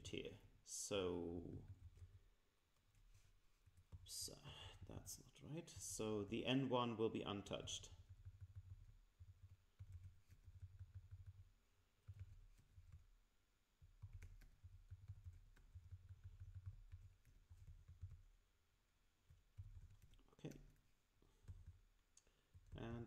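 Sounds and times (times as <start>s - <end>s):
typing on computer keyboard: 7.6s - 13.2s, 13.8s - 18.4s, 19.3s - 23.0s.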